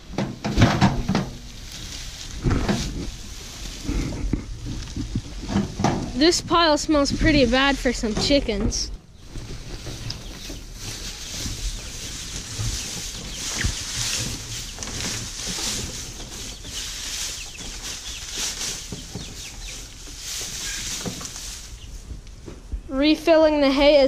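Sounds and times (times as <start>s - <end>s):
straw rustling and crackling: 0.0s - 22.7s
chicks cheeping: 9.1s - 22.0s.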